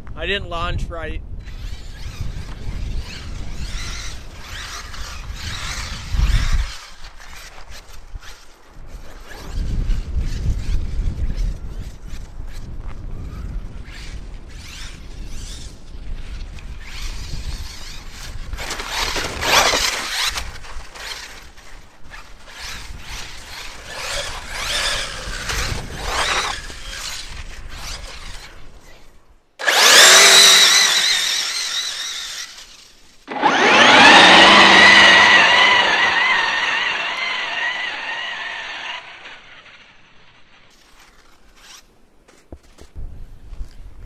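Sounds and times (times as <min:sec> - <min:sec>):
electric motor whining: 0:16.8 - 0:21.6, 0:22.4 - 0:39.9.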